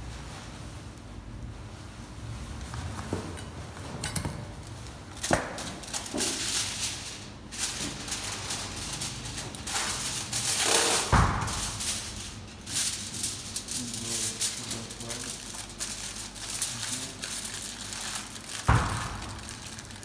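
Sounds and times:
food wrap crinkling: 4.6s - 20.0s
heavy thud: 11.1s - 12.4s, 18.7s - 19.7s.

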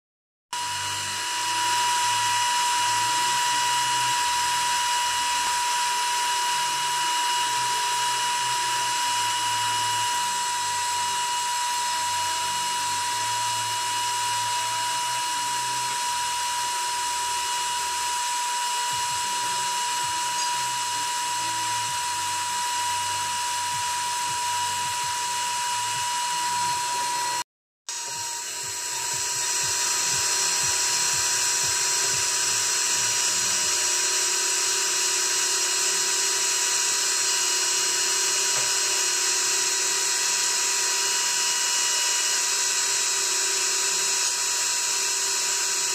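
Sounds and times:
engraving machine spindle whine: 0.6s - 45.9s.

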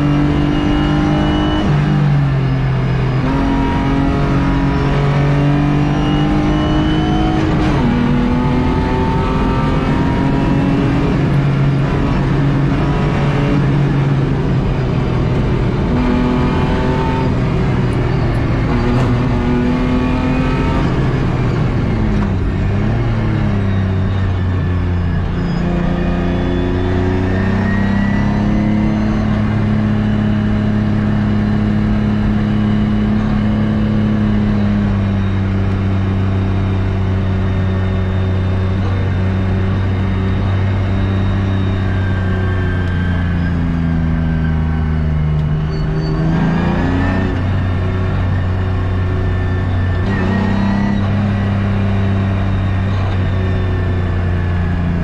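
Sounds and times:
car engine revving: 0.0s - 55.0s
road and wind noise: 0.0s - 55.0s.

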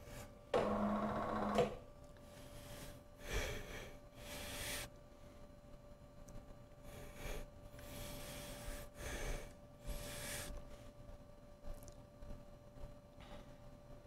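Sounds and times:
small electric motor humming: 0.6s - 1.8s.

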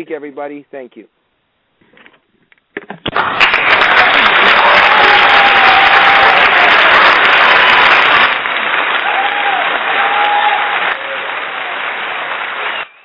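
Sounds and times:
crowd applause: 3.1s - 13.0s.

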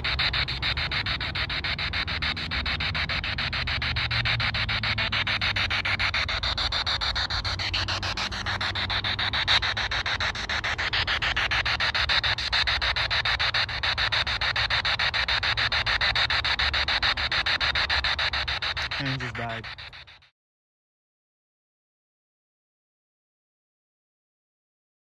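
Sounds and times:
pulsing radio static: 0.0s - 20.3s.

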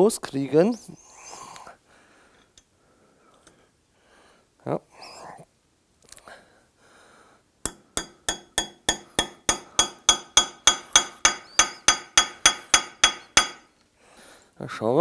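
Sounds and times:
hammer tapping on metal: 7.7s - 13.7s.

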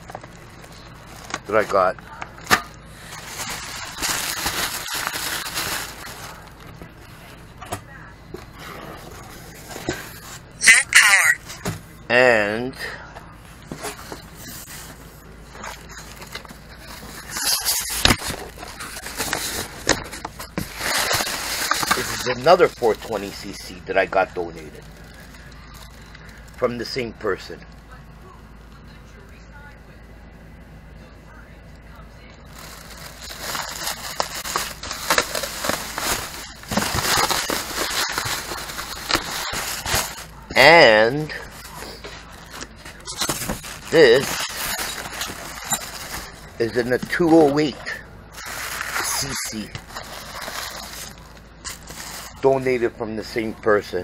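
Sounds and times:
foam bag and cardboard crinkling: 0.0s - 6.8s, 13.7s - 27.6s, 32.5s - 53.9s.

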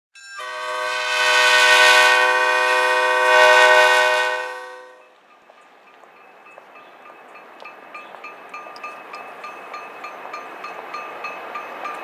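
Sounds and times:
locomotive air horn chord: 0.4s - 5.1s.

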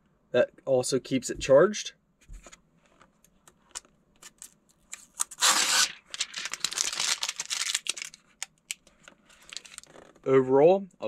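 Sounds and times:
crinkling plastic: 3.6s - 10.2s
plastic film peeling: 3.7s - 10.2s.

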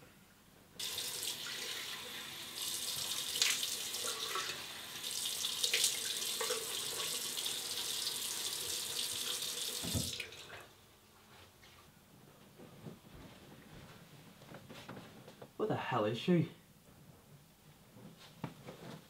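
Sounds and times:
tap running into sink: 9.7s - 10.4s.

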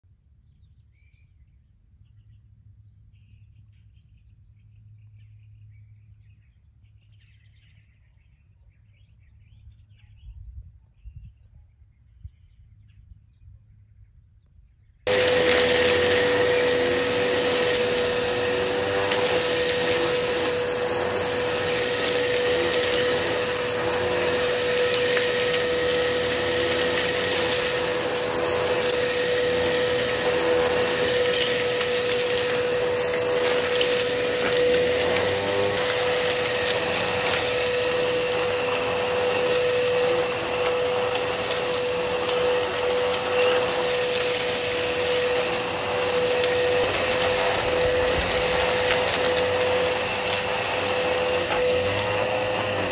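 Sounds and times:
vacuum cleaner running: 15.1s - 52.9s.

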